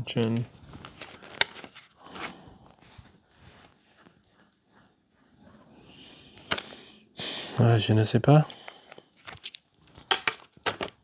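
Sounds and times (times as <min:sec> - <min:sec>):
faint rubbing of plastic cases: 0:00.2 - 0:06.6
plastic cases clicking: 0:08.9 - 0:11.0.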